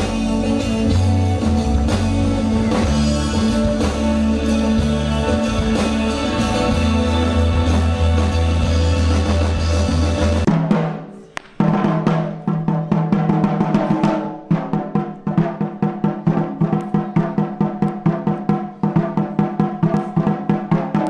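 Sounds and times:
sustained pitched notes: 0.0 - 10.5
taiko drums beating rapidly: 0.0 - 21.0.

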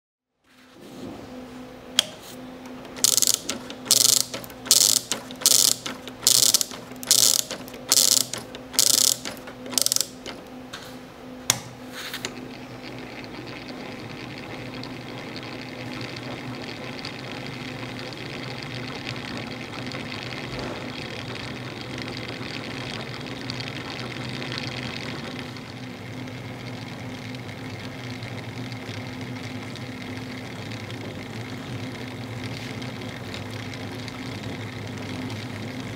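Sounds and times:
gears whirring: 2.6 - 10.5
ratchet clicks: 2.8 - 10.5.

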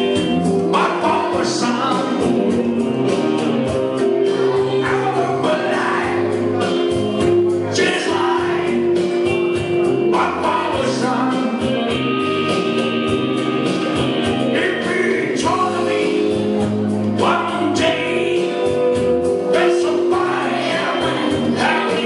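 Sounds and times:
instrumental backing music: 0.0 - 22.0
man singing into microphone: 0.7 - 2.8, 4.3 - 7.0, 7.6 - 11.9, 14.4 - 22.0.

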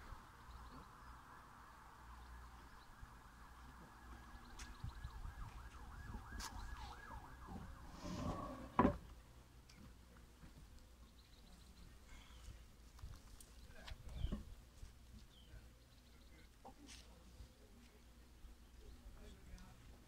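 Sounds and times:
distant siren warbling: 3.0 - 9.0.

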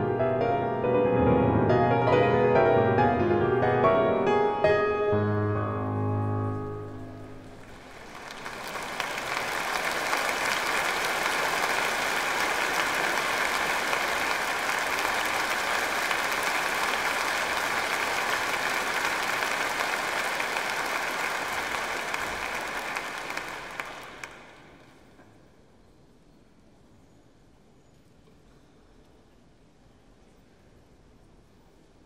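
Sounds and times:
audience applause: 6.6 - 25.1.

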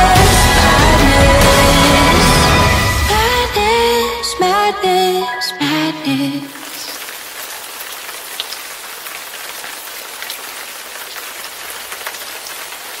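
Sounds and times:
steady rain-like hiss: 6.0 - 13.0.

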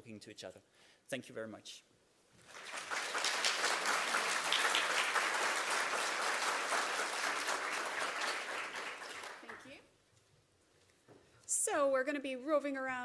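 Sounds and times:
audience applauding: 2.4 - 9.8.

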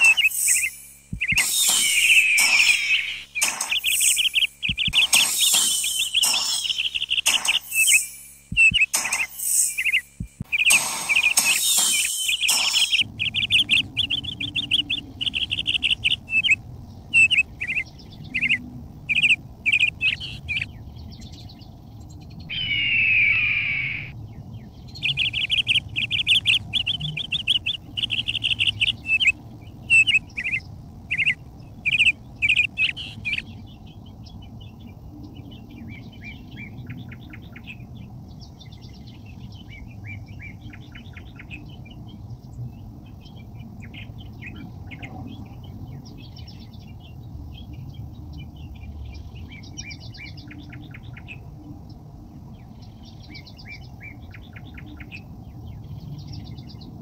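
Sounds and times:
low background hum: 0.0 - 57.0
small birds chirping: 0.0 - 57.0.

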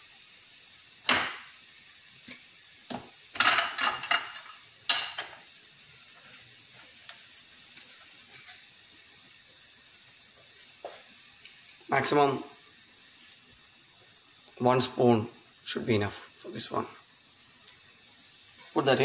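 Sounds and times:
onions sizzling in a frying pan: 0.0 - 19.0
kitchen utensils clinking: 3.4 - 5.4.

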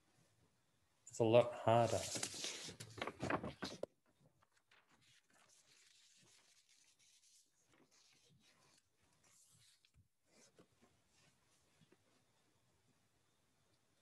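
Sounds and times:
man's voice: 1.2 - 2.1.

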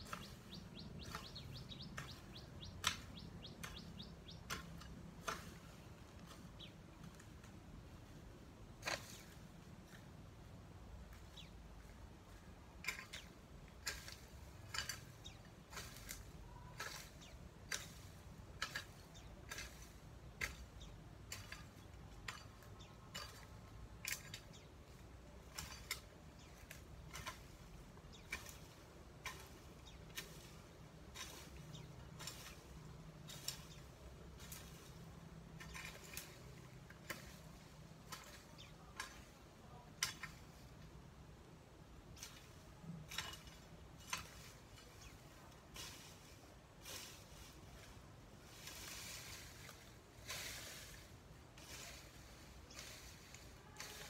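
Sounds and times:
garden tool chopping soil: 0.0 - 7.5, 8.8 - 10.0, 12.8 - 40.6.

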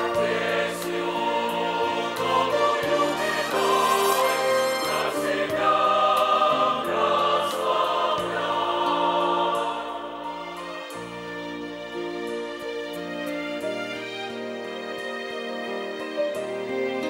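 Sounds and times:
choir singing a hymn: 0.0 - 11.0.

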